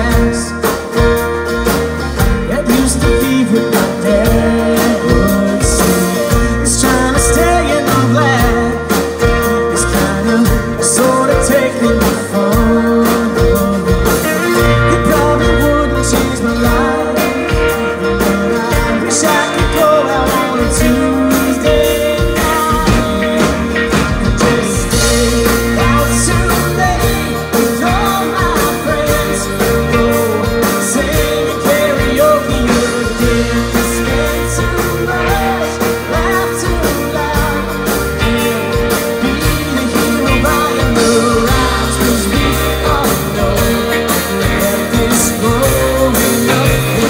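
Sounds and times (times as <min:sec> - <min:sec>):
man singing: 0:00.0 - 0:01.3, 0:02.2 - 0:47.0
country-pop band playing: 0:00.0 - 0:47.0.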